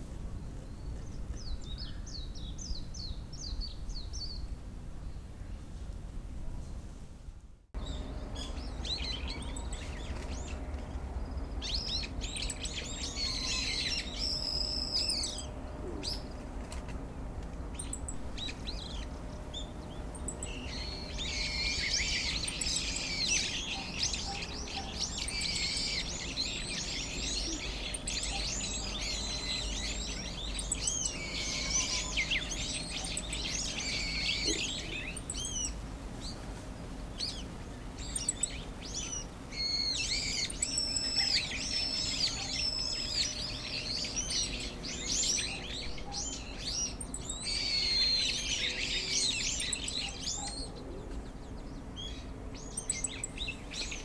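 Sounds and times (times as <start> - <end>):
small birds chirping: 0.0 - 5.7, 7.8 - 54.0.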